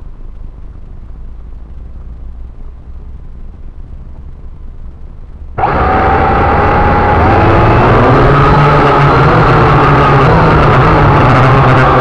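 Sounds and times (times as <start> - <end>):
low rumble: 0.0 - 12.0
quadcopter propellers whining: 5.6 - 12.0.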